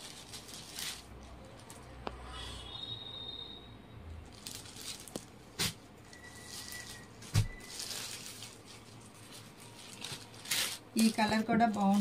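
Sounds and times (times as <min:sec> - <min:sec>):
fabric rustling: 0:04.3 - 0:12.0.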